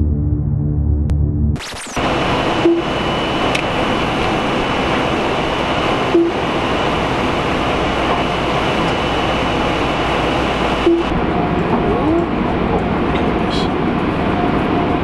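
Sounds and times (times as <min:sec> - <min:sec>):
car wash machinery rushing: 0:02.0 - 0:15.0
short electronic beep: 0:02.6 - 0:03.4, 0:06.1 - 0:06.4, 0:10.8 - 0:11.1.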